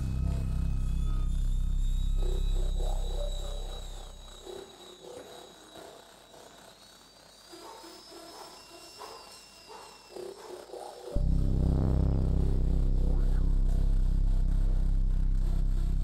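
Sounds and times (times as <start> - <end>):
deep pulsing electronic drone: 0.0 - 4.6, 11.2 - 16.0
high gliding whistle-like sweeps: 0.0 - 5.3.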